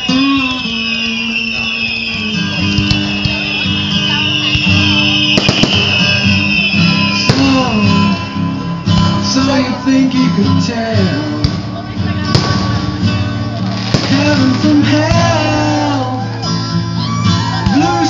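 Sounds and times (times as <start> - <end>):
firework whistle: 0.0 - 9.0, 12.3 - 18.0
music with guitar and singing: 0.0 - 18.0
firework bangs: 2.7 - 8.3, 12.3 - 16.0.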